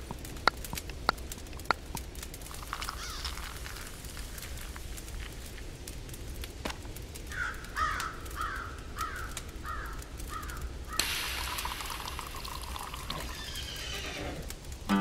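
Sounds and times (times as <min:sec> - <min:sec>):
espresso spraying hiss: 0:11.0 - 0:13.0
short squeaks of hand pump: 0:13.1 - 0:14.5.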